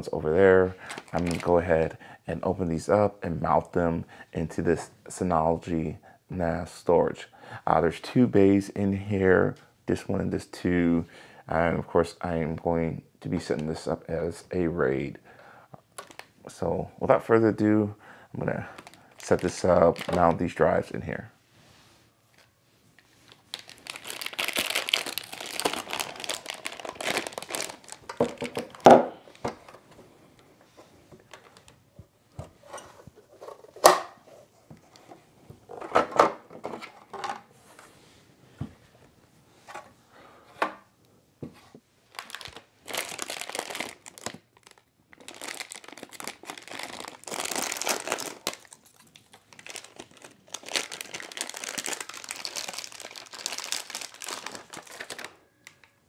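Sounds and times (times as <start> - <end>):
plastic wrapping crinkling: 0.8 - 1.8, 16.0 - 16.4, 18.7 - 20.8, 22.3 - 29.8, 42.1 - 56.0.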